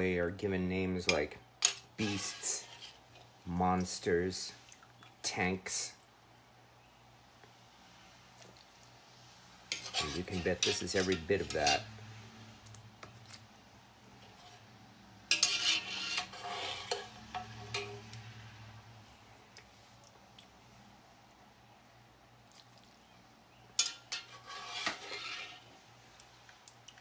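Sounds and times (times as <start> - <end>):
metal utensil scraping cast iron pot: 1.0 - 3.3, 9.7 - 12.1, 14.1 - 14.7, 15.3 - 18.6, 23.8 - 25.8.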